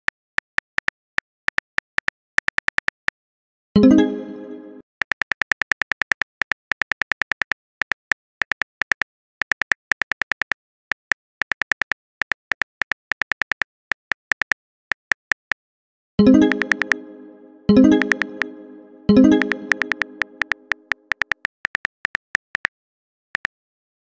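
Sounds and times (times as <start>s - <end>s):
message chime: 3.8s - 4.8s, 16.2s - 20.9s
phone keyboard typing clicks: 5.0s - 15.6s, 16.4s - 17.0s, 17.8s - 18.6s, 19.2s - 22.7s.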